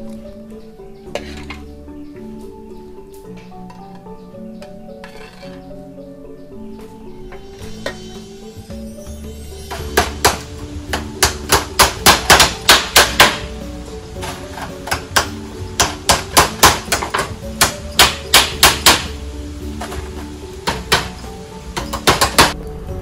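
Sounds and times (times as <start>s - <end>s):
hammers striking bamboo slats: 9.6s - 22.6s.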